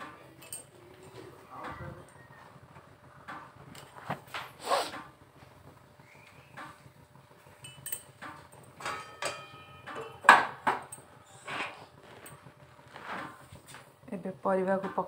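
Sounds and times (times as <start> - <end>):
metal spatula scraping a wok: 11.3 - 11.9.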